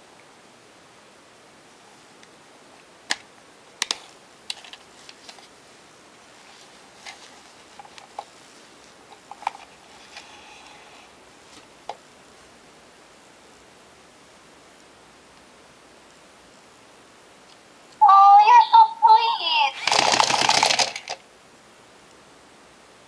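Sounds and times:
faint steady hiss: 0:00.0 - 0:19.9, 0:21.1 - 0:23.0
plastic toy figure clicking: 0:19.8 - 0:21.2.

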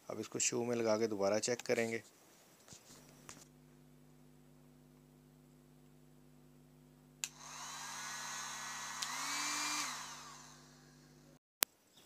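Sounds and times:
heat gun fan whine: 0:07.1 - 0:11.4
heat gun switch click: 0:07.2 - 0:07.4, 0:08.9 - 0:10.0.

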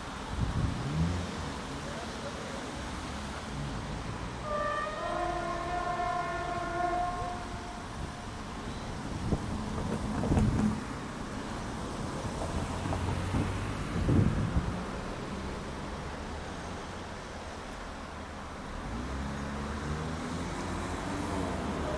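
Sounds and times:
train engine and wheels rumbling: 0:00.0 - 0:21.9
train horn: 0:04.4 - 0:08.4.

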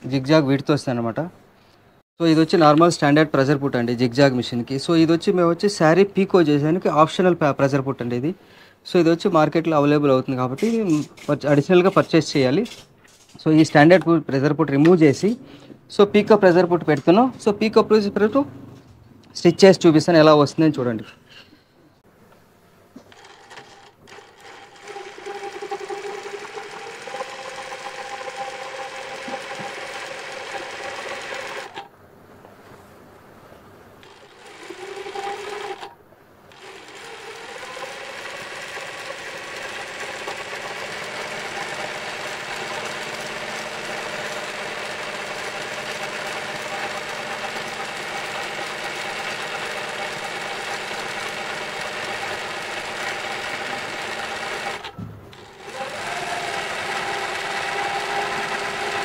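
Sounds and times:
sewing machine whining: 0:23.0 - 0:31.9, 0:34.0 - 0:35.9, 0:36.5 - 0:59.0.

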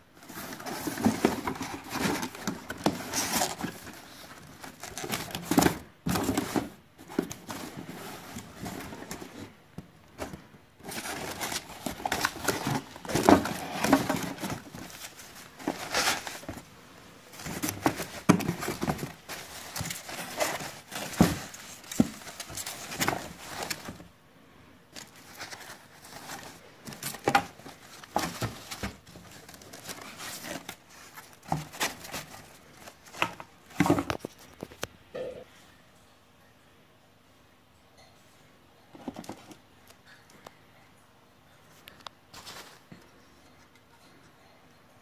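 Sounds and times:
cardboard and plastic wrap crinkling: 0:00.2 - 0:24.2, 0:24.9 - 0:34.9, 0:39.0 - 0:39.6, 0:42.3 - 0:42.9.

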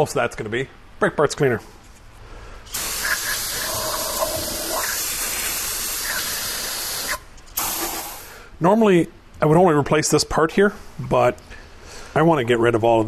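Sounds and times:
aerosol can spraying hiss: 0:02.7 - 0:08.3.

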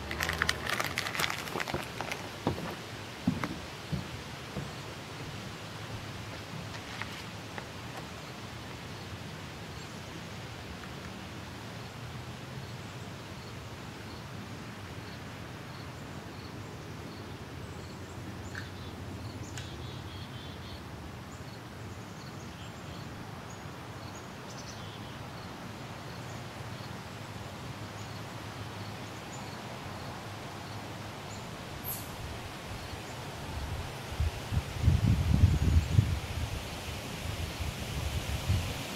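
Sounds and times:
low rumbling bumps: 0:00.0 - 0:05.0
wind in leaves: 0:00.0 - 0:38.9
faint high chirp: 0:31.8 - 0:32.2.

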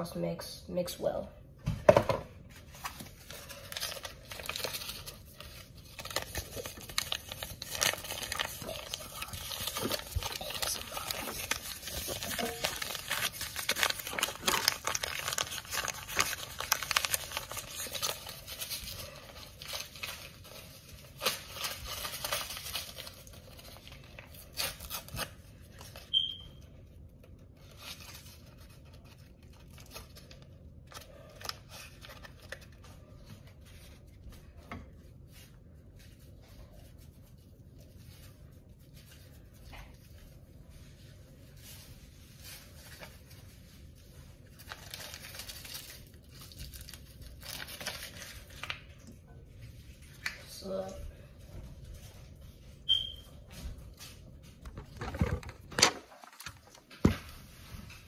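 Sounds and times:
packaging crinkling and tearing: 0:02.6 - 0:34.2, 0:35.4 - 0:50.5
high squeak: 0:52.9 - 0:53.2.

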